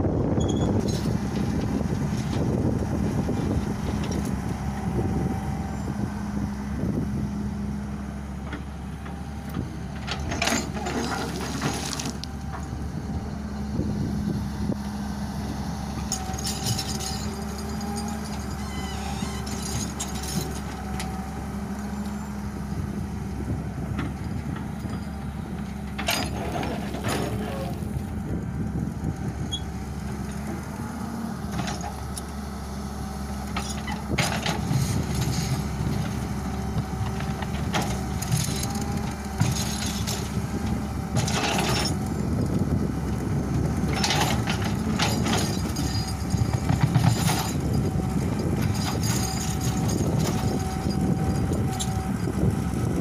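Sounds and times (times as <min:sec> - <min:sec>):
excavator diesel engine running: 0:00.0 - 0:53.0
bucket scraping and rattling stones: 0:10.3 - 0:12.3, 0:26.1 - 0:27.9.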